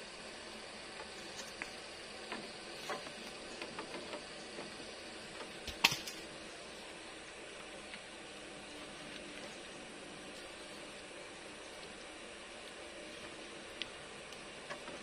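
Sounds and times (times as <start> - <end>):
steady hiss: 0.0 - 15.0
bamboo poles knocking together: 5.6 - 6.2
sharp bamboo clack: 5.6 - 6.2.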